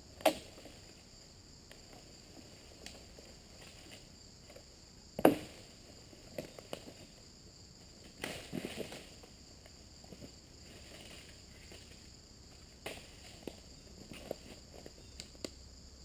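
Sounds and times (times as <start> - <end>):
insects chirring: 0.0 - 16.0.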